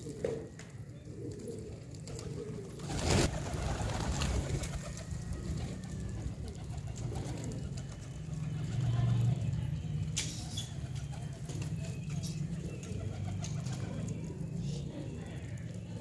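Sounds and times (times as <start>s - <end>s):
pigeons cooing: 0.0s - 16.0s
wing flaps: 2.1s - 8.2s.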